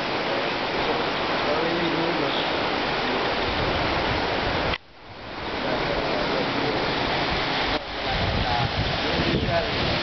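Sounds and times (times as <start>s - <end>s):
wind buffeting microphone: 3.4s - 10.0s.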